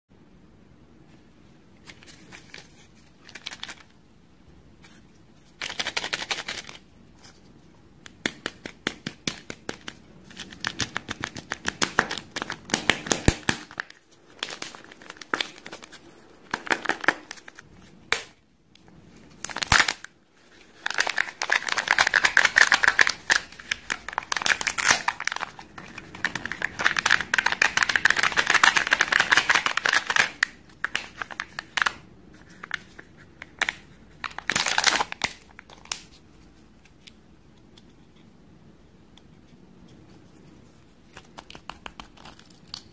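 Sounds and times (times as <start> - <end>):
foil wrapper crinkling and tearing: 9.4 - 17.6, 19.4 - 32.0, 33.6 - 36.1, 41.2 - 42.9.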